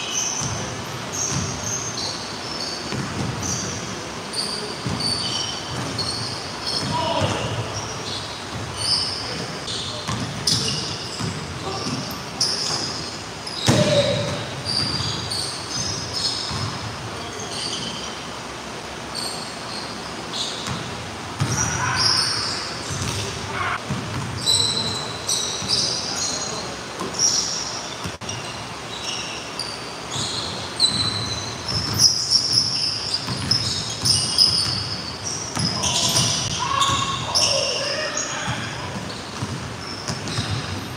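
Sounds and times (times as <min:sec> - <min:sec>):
sneakers squeaking: 0:00.0 - 0:40.9
basketballs bouncing on wood floor: 0:00.4 - 0:01.7, 0:02.8 - 0:03.9, 0:04.8 - 0:07.8, 0:08.5 - 0:16.8, 0:20.6 - 0:22.0, 0:22.9 - 0:24.9, 0:30.1 - 0:37.6, 0:38.4 - 0:40.9.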